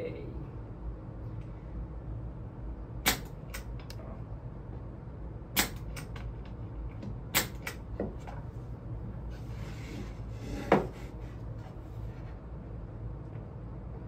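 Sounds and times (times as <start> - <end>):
nail gun firing into plywood: 3.0 - 3.3, 5.6 - 5.9, 7.3 - 7.8.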